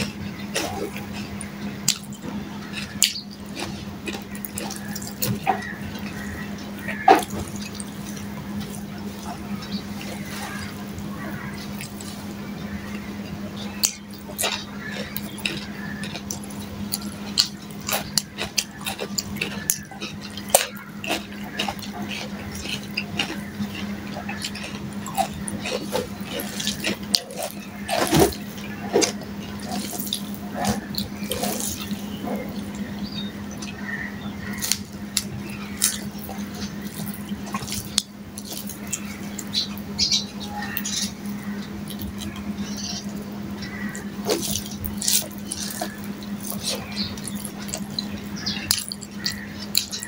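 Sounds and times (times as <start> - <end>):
fingers squishing rice on plate: 0.0 - 50.0
mouth sounds of eating: 0.0 - 50.0
steady low hum: 0.0 - 50.0.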